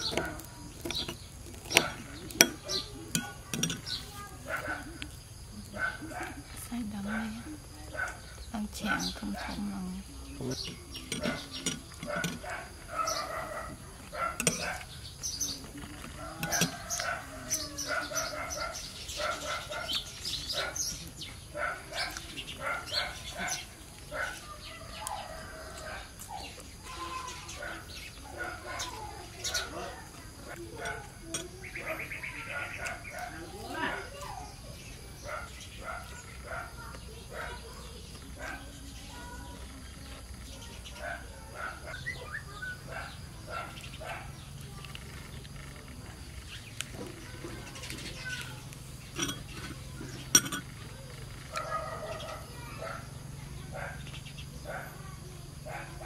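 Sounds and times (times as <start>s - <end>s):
chickens clucking: 0.0s - 53.9s
small birds chirping: 0.0s - 56.0s.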